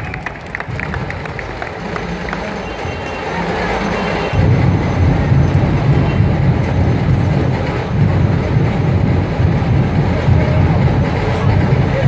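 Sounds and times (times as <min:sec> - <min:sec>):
drumming in dense beat: 0:00.7 - 0:12.0.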